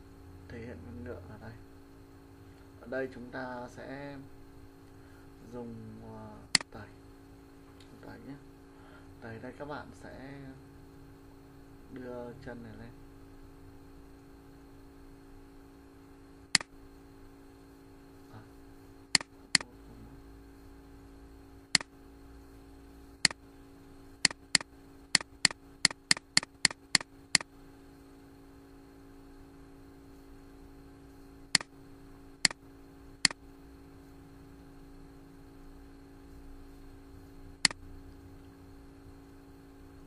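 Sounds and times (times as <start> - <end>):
steady low hum: 0.0 - 40.0
computer mouse clicking: 16.5 - 16.7, 19.1 - 19.7, 21.7 - 21.9, 24.2 - 27.5.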